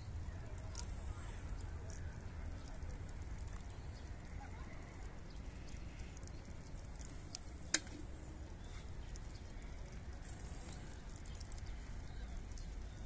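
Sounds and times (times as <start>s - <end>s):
steady low rumble: 0.0s - 13.0s
faint ticks: 0.5s - 13.0s.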